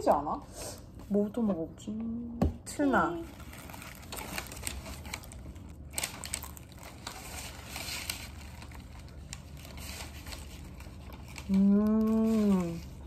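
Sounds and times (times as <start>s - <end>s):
paper wrapping rustling and crinkling: 2.9s - 13.0s.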